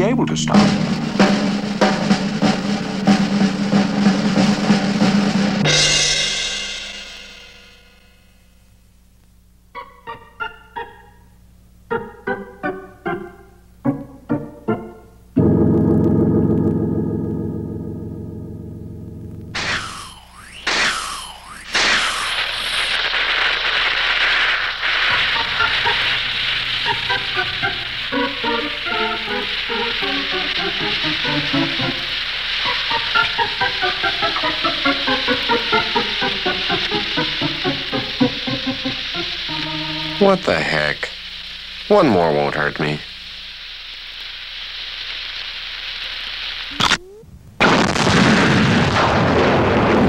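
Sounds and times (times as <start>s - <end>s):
fast snare and bass drum roll: 0.0s - 8.0s, 19.5s - 38.2s
short music notes: 0.0s - 8.0s, 11.9s - 20.4s, 26.9s - 40.6s
loud ringing cymbal crash: 0.5s - 8.5s
falling swoop: 19.5s - 22.8s
cartoon fire hissing and crackling: 19.5s - 50.0s.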